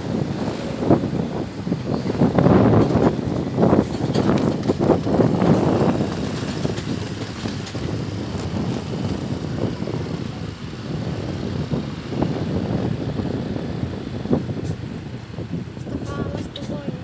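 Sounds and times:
road noise: 0.0 - 17.0
vehicle engine running: 4.0 - 17.0.

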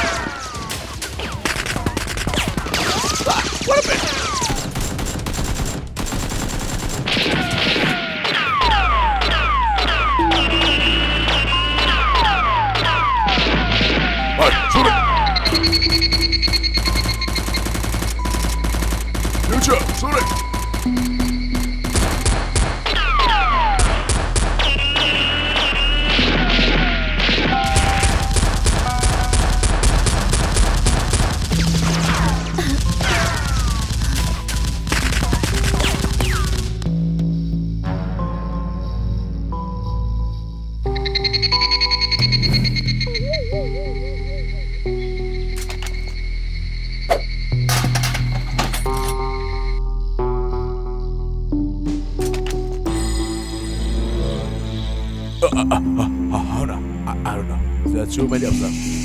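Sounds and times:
gunfire bursts: 0.0 - 10.0, 16.5 - 36.8
action background music: 0.0 - 38.5
whistles of rounds flying past: 10.3 - 12.0, 24.6 - 26.2.

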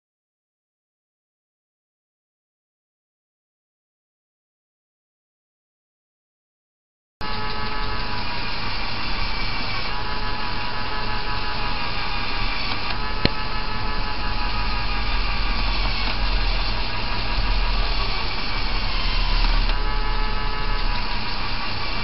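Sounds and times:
electric motor and plastic gears running: 7.2 - 22.0
sharp click: 12.7 - 13.4.

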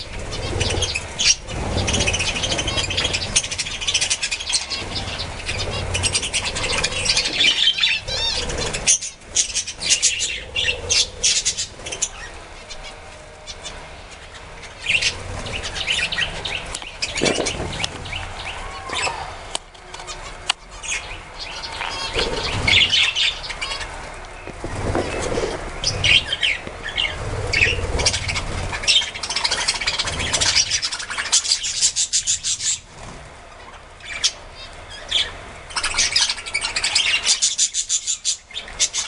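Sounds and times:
budgerigars chattering and chirping: 0.0 - 19.2, 20.0 - 39.0
wing flutters: 0.0 - 39.0.

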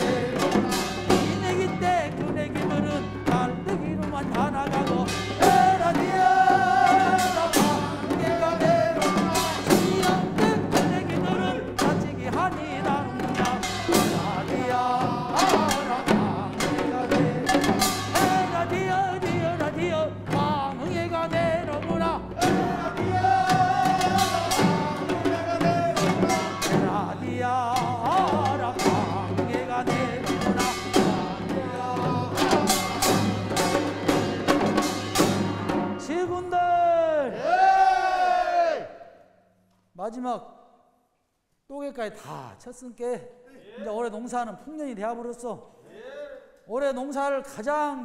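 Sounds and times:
group singing: 0.0 - 2.9, 4.6 - 35.8, 37.3 - 39.0
barrel drums beaten: 0.0 - 36.8.

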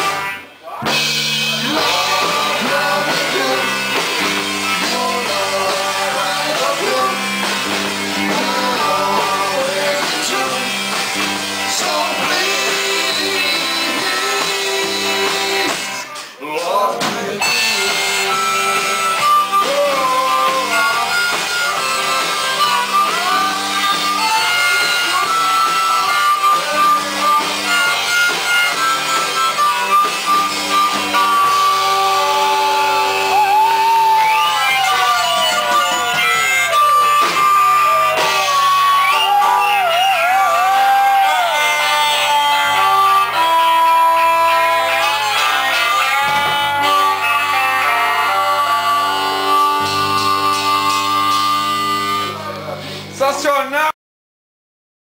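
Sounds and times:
harmonica bending notes: 0.0 - 16.3, 17.4 - 53.2
live rock band playing: 0.0 - 53.4.

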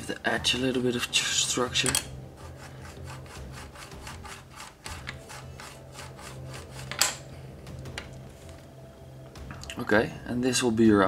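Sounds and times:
plastic rubbing rasp: 2.3 - 7.2.

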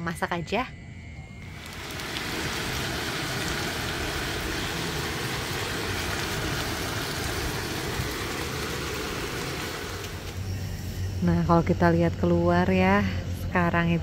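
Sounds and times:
low steady rumble: 0.7 - 14.0
meat and onions sizzling: 1.4 - 10.6.

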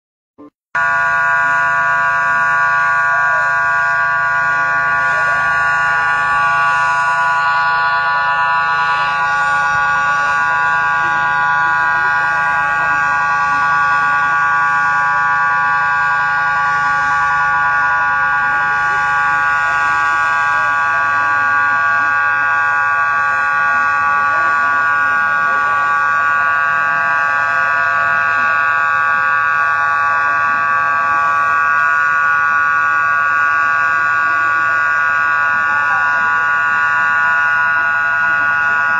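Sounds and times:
buzzing alarm tone: 0.4 - 38.9.

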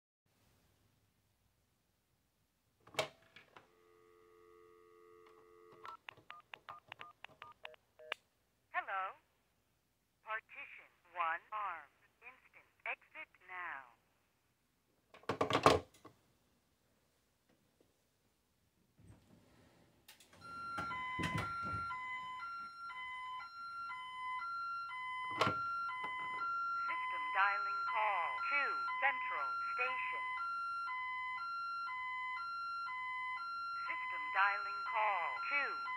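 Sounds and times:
dial tone: 3.6 - 6.0
clicks: 5.2 - 8.2
touch-tone key beeps: 5.8 - 8.2
alarm two-tone warble: 20.4 - 35.9.

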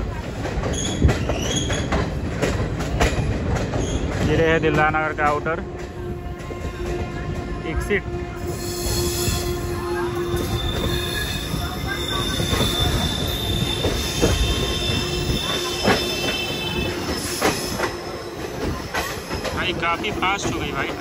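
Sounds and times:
train wheels rumbling: 0.0 - 21.0
wheels squealing on rail: 0.5 - 2.2, 3.0 - 4.5, 8.3 - 21.0.

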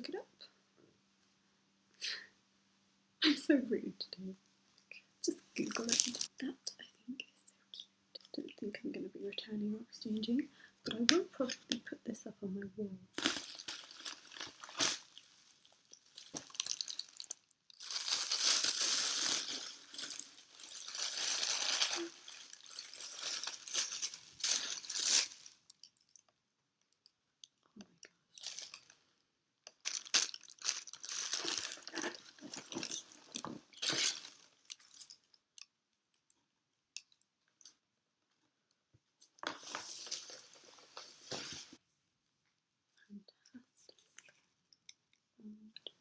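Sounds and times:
packaging and tissue paper crinkling: 13.2 - 25.7, 28.4 - 29.0, 29.8 - 35.2.

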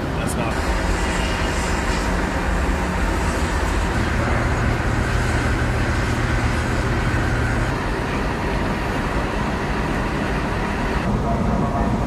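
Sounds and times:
heavy machinery rumbling: 0.0 - 12.0.

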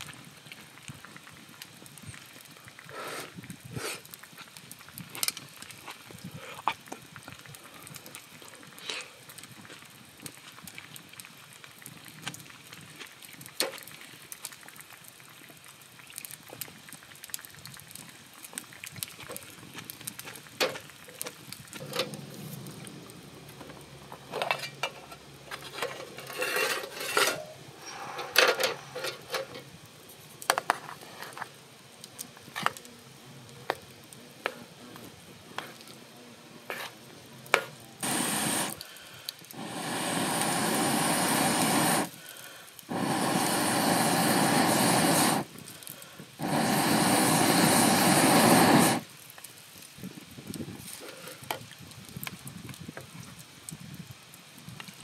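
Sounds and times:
wooden spoon scraping a mess tin: 24.3 - 29.6, 36.7 - 37.8.

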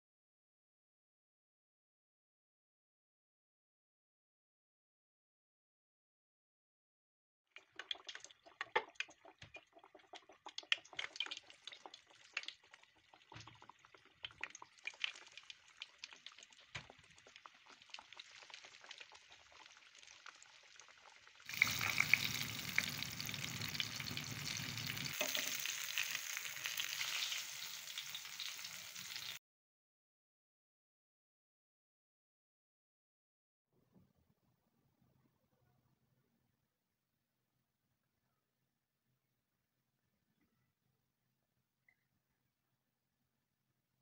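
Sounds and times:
oil sizzling with crackles and pops: 7.5 - 29.4.

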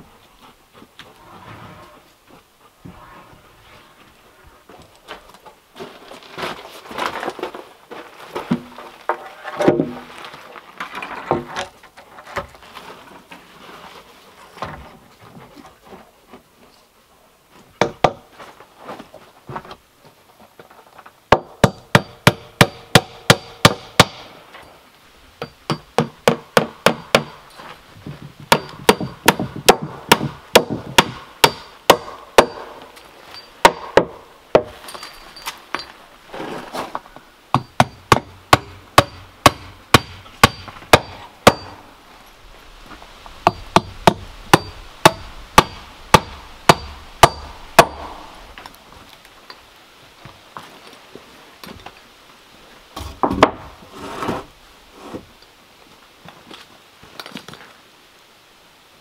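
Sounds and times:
hammer striking metal: 28.5 - 32.8, 37.6 - 41.8, 43.5 - 48.1.

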